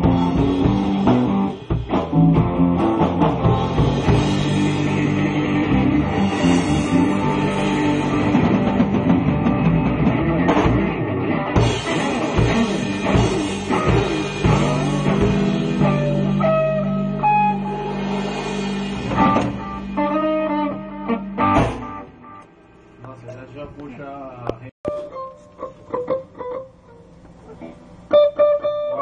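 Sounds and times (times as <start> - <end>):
rock band playing live: 0.0 - 22.4
final loud hit: 21.4 - 22.4.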